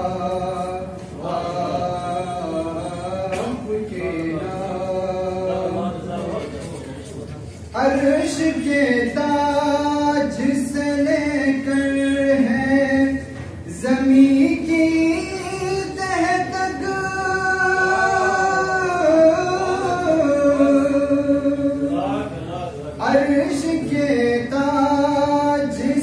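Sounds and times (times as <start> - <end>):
boy singing: 7.8 - 22.2.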